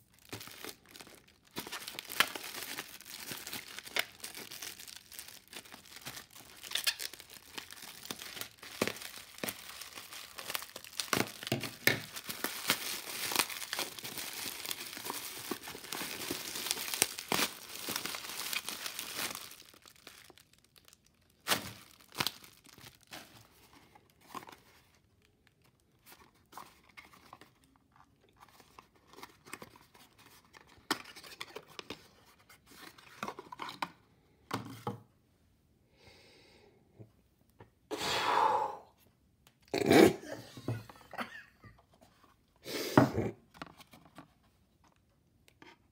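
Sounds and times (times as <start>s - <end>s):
bubble wrap crinkling: 0.0s - 30.4s.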